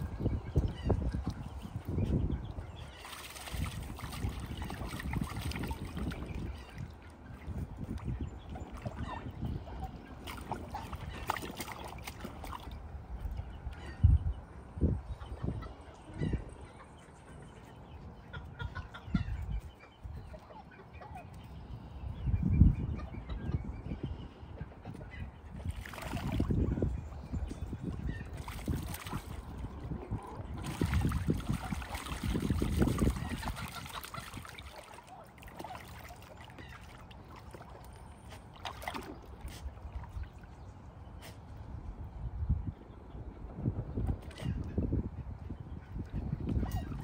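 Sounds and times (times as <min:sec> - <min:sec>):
ducks splashing in water: 0:00.0 - 0:13.8, 0:25.1 - 0:27.0, 0:27.6 - 0:40.6
chicken clucking softly: 0:15.2 - 0:21.5.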